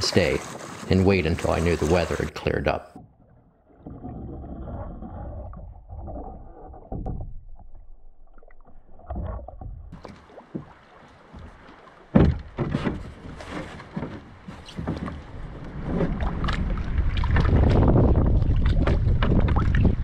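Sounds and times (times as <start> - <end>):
thumps on wooden canoe: 9.6 - 15.2.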